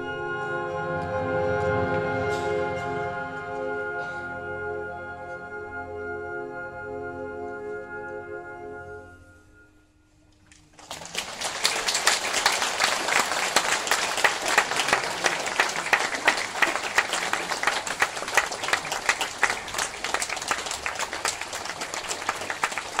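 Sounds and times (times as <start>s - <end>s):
large audience applauding: 10.7s - 23.0s.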